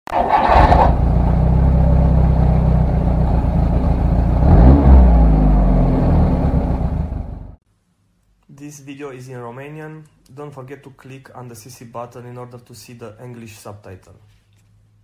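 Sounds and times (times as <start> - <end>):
car engine idling and revving: 0.2 - 7.6.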